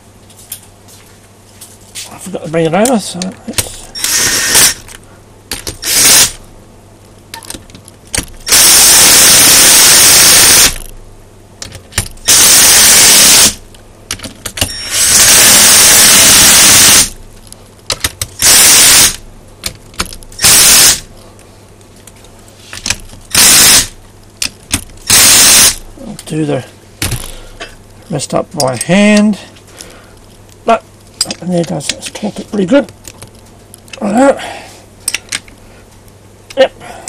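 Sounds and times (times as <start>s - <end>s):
impact driver bursts: 4.0s - 4.9s, 5.7s - 6.4s, 8.4s - 10.9s, 12.2s - 13.6s, 14.6s - 17.2s, 18.4s - 19.2s, 20.4s - 21.1s, 23.3s - 24.0s, 25.0s - 25.8s.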